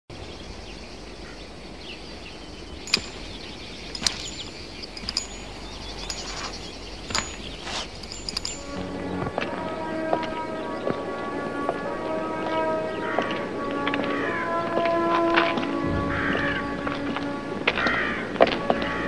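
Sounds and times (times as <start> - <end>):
steady outdoor hush: 0.1 - 19.0
sharp metallic clicks with ring: 2.9 - 8.8.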